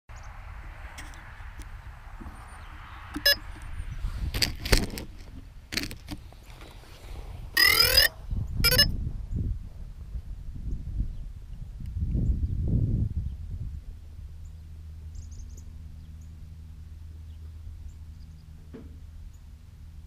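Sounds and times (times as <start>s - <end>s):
low rumble on microphone: 0.1s - 20.0s
electronic tone with gliding pitch: 7.6s - 8.9s
short electronic beep: 7.6s - 8.9s.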